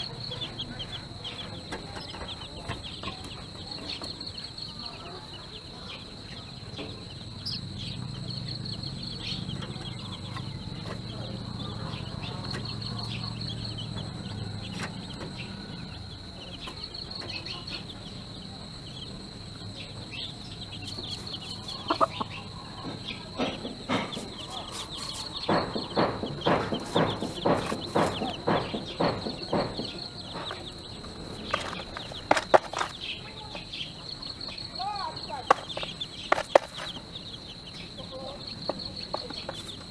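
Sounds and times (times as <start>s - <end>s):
hen pecking grain: 0.0s - 39.9s
hen clucking: 20.7s - 32.9s.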